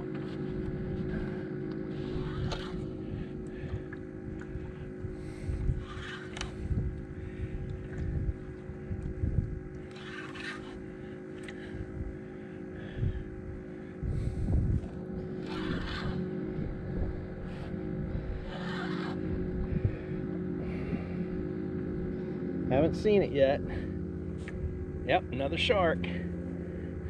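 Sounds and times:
steady low hum: 0:00.0 - 0:27.0
wind rumbling on microphone: 0:00.0 - 0:27.0
fishing reel cranking: 0:05.8 - 0:06.6, 0:09.8 - 0:11.7, 0:15.4 - 0:16.2, 0:18.5 - 0:19.2.

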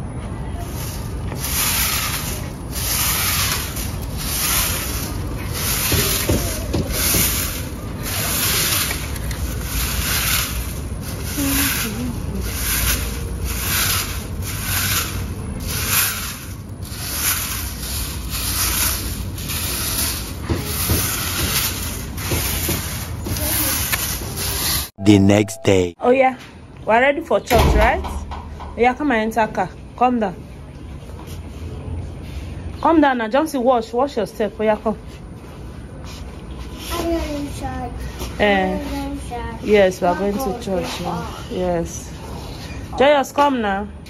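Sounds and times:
broom sweeping dirt: 0:00.9 - 0:23.9.

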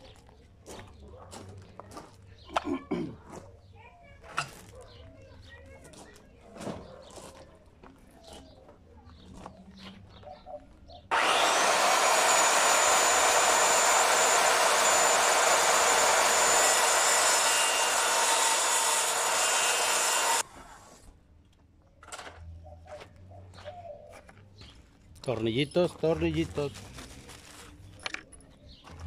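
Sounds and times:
circular saw cutting wood: 0:11.1 - 0:21.1.

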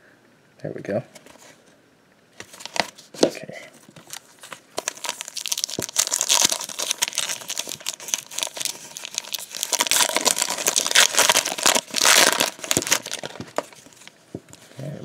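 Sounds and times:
foil wrapper crinkling and tearing: 0:04.0 - 0:14.2.

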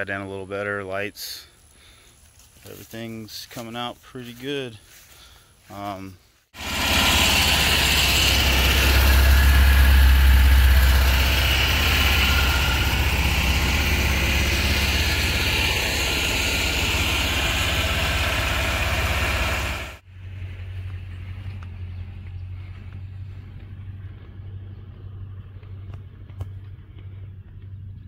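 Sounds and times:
small engine droning: 0:06.6 - 0:28.0.

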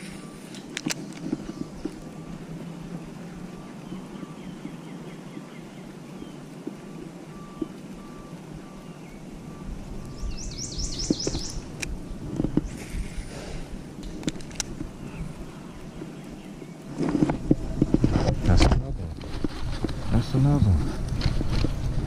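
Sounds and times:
bird trilling: 0:03.6 - 0:11.7.

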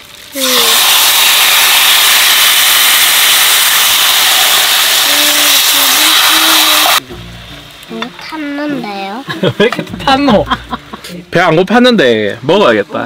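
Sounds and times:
ribs sizzling in frying pan: 0:00.0 - 0:07.0.

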